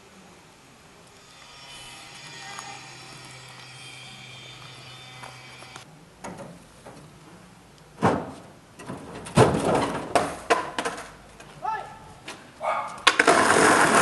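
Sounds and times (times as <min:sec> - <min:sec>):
steady hum with held tones: 0:00.0 - 0:06.0
skateboard wheels rolling on asphalt: 0:12.3 - 0:14.0.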